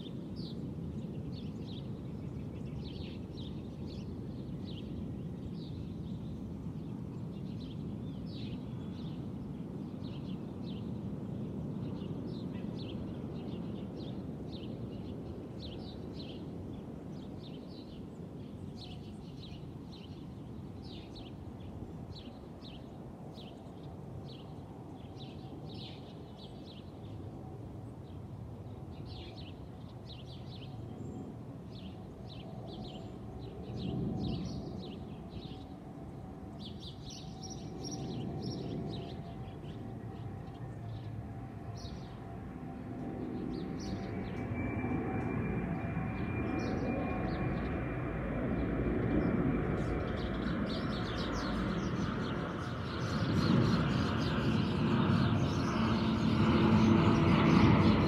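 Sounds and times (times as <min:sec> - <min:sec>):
airplane passing overhead: 0:00.0 - 0:58.0
small birds chirping: 0:36.5 - 0:42.3, 0:48.6 - 0:58.0.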